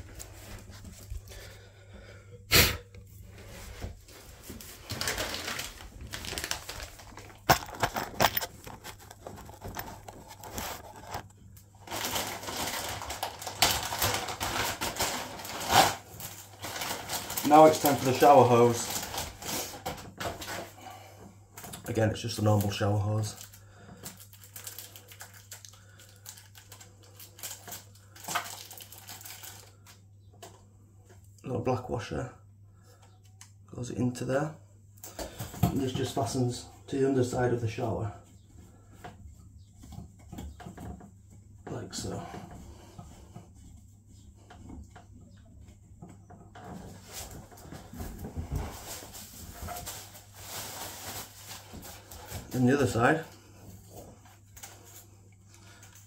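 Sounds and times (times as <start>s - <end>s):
clicks and rustling: 4.6s - 15.6s.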